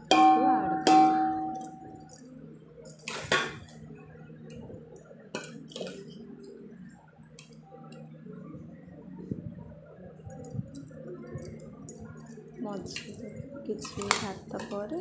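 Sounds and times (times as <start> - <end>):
metal bowl ringing: 0.0 - 2.3.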